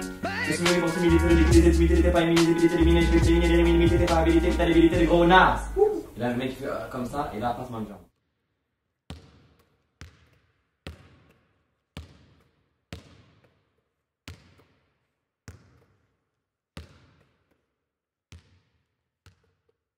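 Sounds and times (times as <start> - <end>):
ball bouncing on hard floor: 9.1 - 16.2, 16.8 - 17.7, 18.3 - 19.8.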